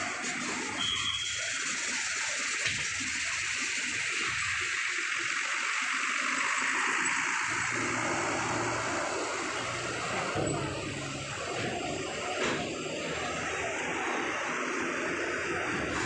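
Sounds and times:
bus driving over steel ramp: 0:00.0 - 0:16.0
low engine hum: 0:06.4 - 0:16.0.

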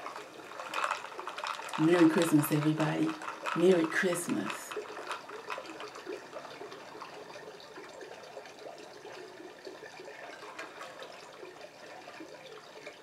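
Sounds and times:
ice clicking against glass: 0:00.0 - 0:08.6.

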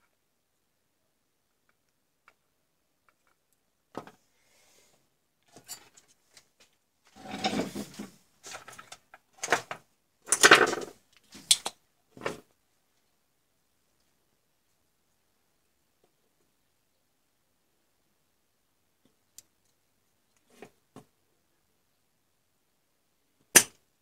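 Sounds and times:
objects scraping on a workbench: 0:07.1 - 0:08.7.

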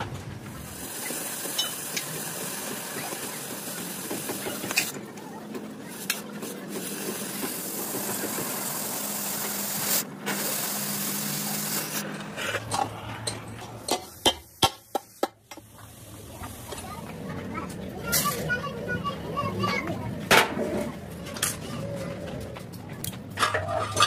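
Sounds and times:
cutting torch hissing: 0:00.5 - 0:05.0, 0:05.8 - 0:12.2.

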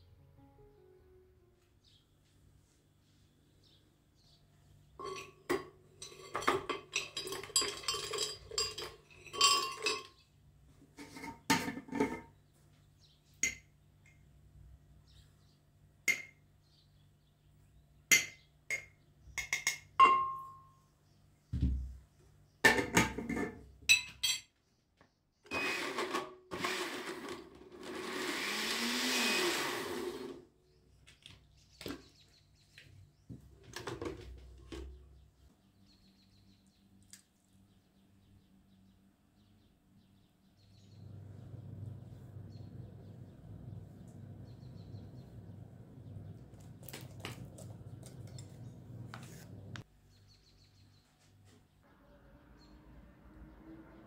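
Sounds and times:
metal spoon clinking on glass jar: 0:05.0 - 0:10.2, 0:18.1 - 0:20.8
blender motor churning: 0:25.5 - 0:30.5.

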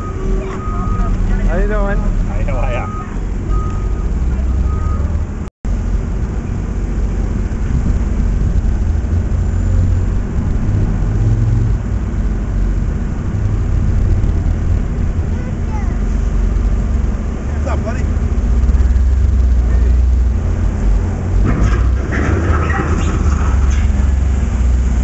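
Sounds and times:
reversing alarm beeping: 0:00.0 - 0:01.4, 0:02.5 - 0:05.1
diesel engine rumbling: 0:00.0 - 0:25.0.

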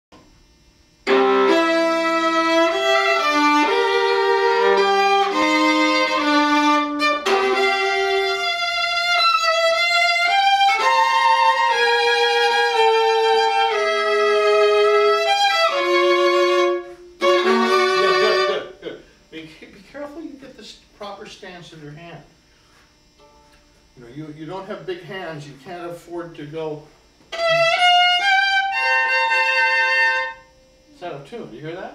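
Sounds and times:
bowed viola melody: 0:01.1 - 0:18.8, 0:27.3 - 0:30.6.

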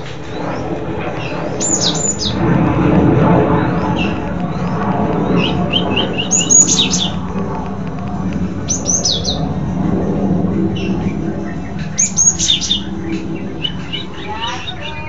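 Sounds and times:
low background rumble: 0:00.0 - 0:15.0
bird singing high sharp notes: 0:01.6 - 0:02.4, 0:05.4 - 0:07.2, 0:08.7 - 0:09.5, 0:11.9 - 0:15.0.

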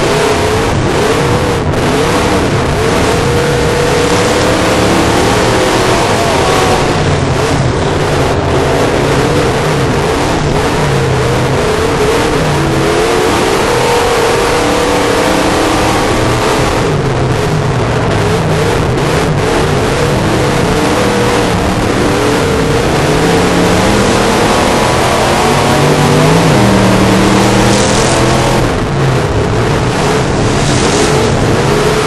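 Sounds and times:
loud rush of noise: 0:00.0 - 0:32.0
race car engine revving: 0:00.0 - 0:32.0.

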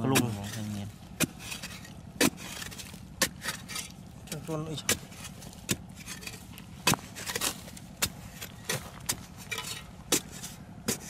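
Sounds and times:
digging bar striking hard earth: 0:00.0 - 0:11.0
soil scraping and crumbling: 0:00.0 - 0:11.0.

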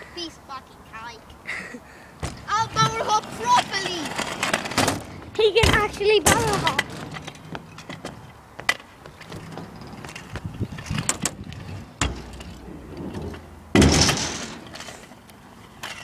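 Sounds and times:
scooter thuds: 0:02.2 - 0:14.9
scooter rolling on a ramp: 0:02.2 - 0:16.0.

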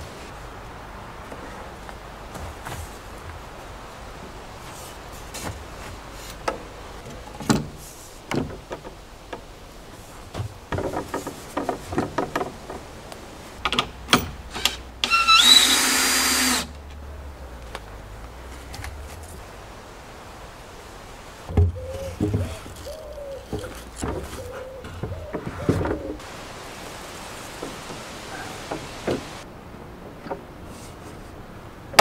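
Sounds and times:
wooden beams knocking and scraping: 0:04.6 - 0:13.0, 0:21.5 - 0:26.2, 0:27.5 - 0:29.4.

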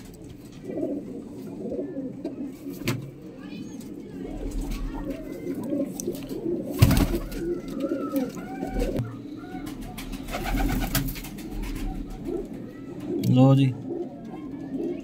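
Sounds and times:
pigeons cooing: 0:00.0 - 0:15.0.

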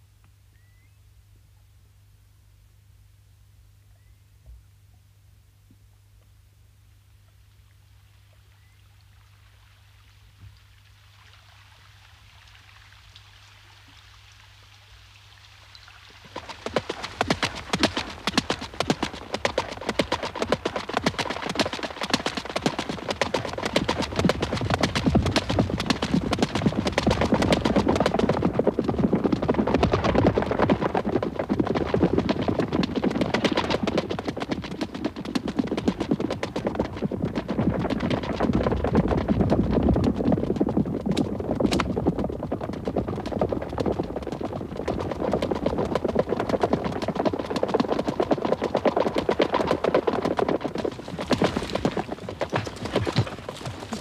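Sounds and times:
horse hoofbeats: 0:16.3 - 0:54.0.

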